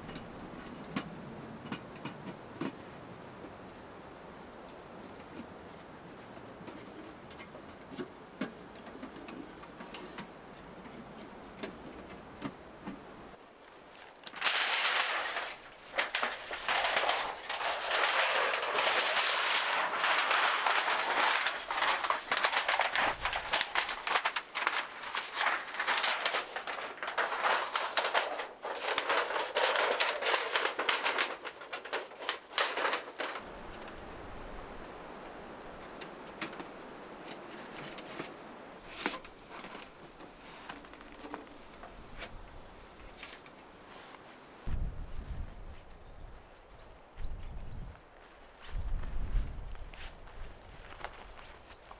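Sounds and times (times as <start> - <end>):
rustling of dry undergrowth: 2.3 - 51.9.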